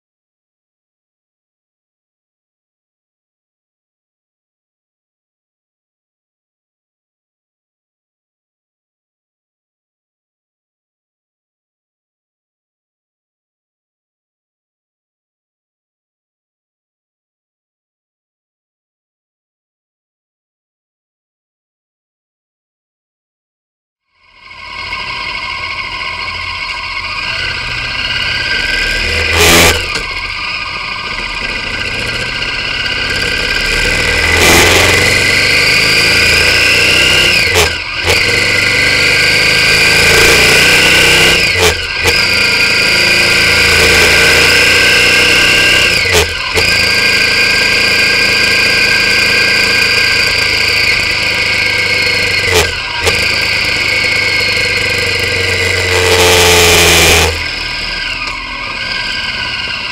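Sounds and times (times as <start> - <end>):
motorcycle engine revving through gears: 24.2 - 59.9
wind and road noise: 24.6 - 59.9.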